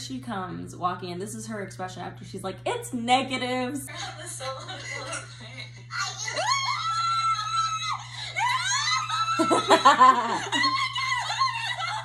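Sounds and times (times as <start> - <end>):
laughter: 3.9 - 5.8, 8.7 - 12.0
women screaming with excitement: 6.3 - 12.0.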